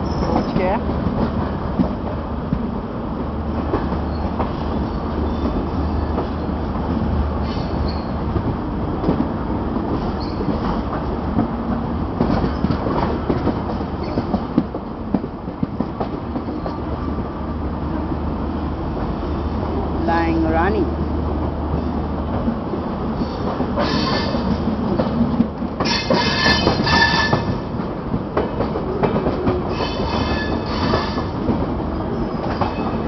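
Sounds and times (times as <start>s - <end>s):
train rumbling: 0.0s - 33.0s
faint wheel squeal: 7.5s - 8.2s
wheels clicking over rail joints: 23.2s - 33.0s.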